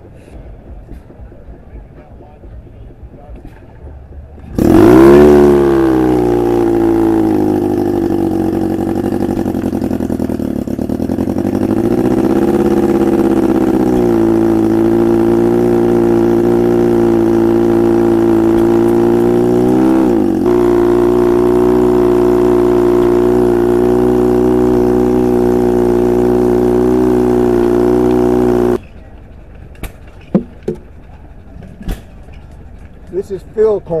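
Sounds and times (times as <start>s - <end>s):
fire pump engine running: 3.6s - 29.7s.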